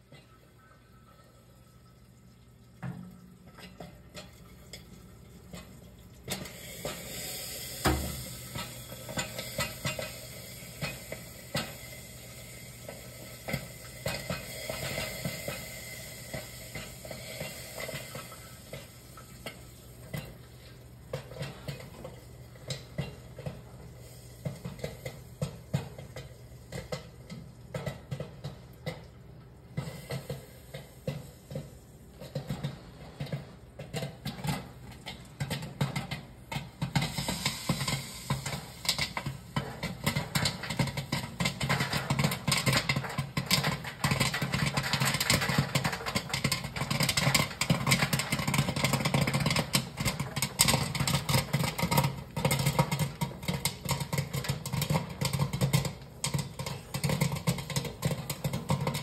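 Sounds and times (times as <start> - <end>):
oil sizzling: 0.0 - 59.0
popcorn popping: 0.0 - 59.0
popcorn machine hum: 2.6 - 59.0.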